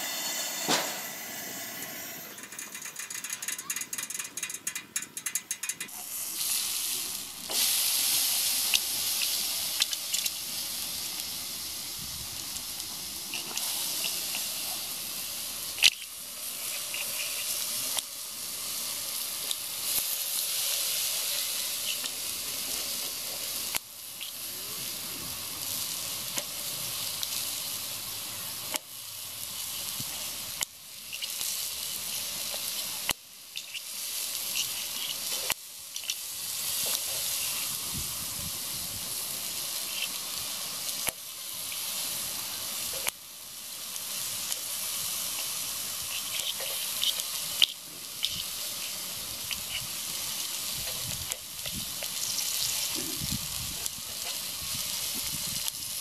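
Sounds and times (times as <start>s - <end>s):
steaks sizzling on grill: 0.0s - 3.7s, 5.8s - 56.0s.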